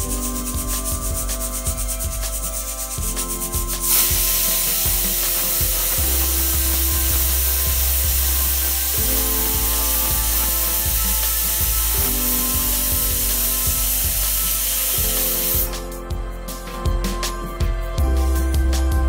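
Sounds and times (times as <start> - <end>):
slow held chords music: 0.0 - 19.0
pressure cooker steam hiss: 3.7 - 15.8.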